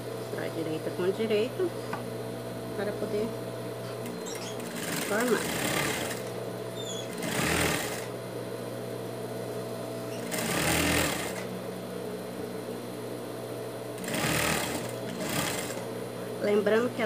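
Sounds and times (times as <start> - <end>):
sewing machine motor humming: 3.9 - 8.1, 10.0 - 11.5, 14.0 - 15.9
sewing machine stitching: 4.0 - 6.3, 6.9 - 8.1, 10.2 - 11.4, 14.0 - 15.8.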